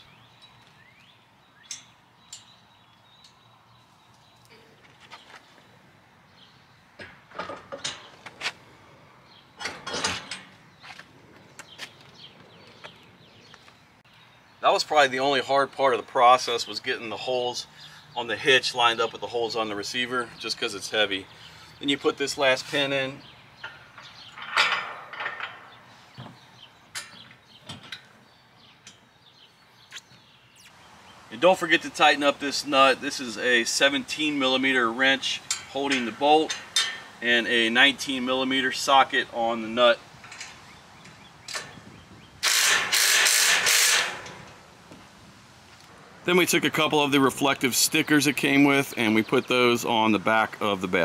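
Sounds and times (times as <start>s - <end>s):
metal hitch pin clicking: 0.4s - 3.4s, 26.9s - 28.1s, 35.4s - 37.2s
metal clanks and knocks: 7.0s - 8.5s, 9.5s - 10.6s, 23.6s - 28.1s, 35.5s - 37.1s.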